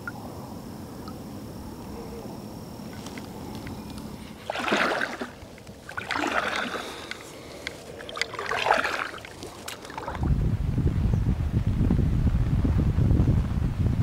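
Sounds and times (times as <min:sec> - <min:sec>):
kayak paddle splashing: 0:02.9 - 0:10.3.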